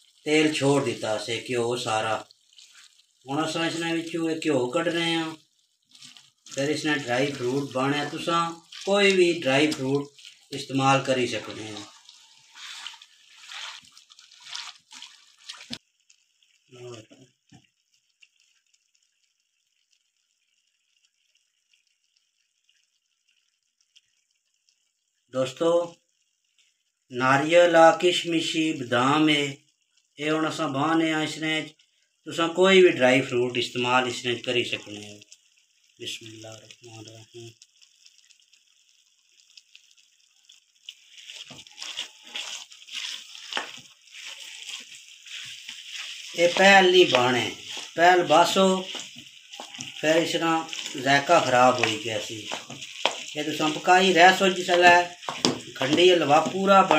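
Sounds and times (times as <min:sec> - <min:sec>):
faint steady hiss: 0:00.0 - 0:56.9
wet sizzle: 0:00.0 - 0:56.9
spatula scraping metal pan: 0:41.2 - 0:48.0.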